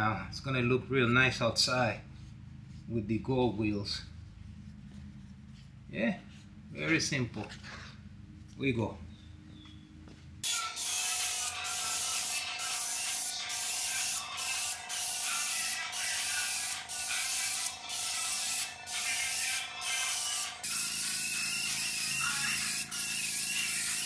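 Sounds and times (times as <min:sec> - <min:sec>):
spray tool hissing: 0:10.4 - 0:24.0.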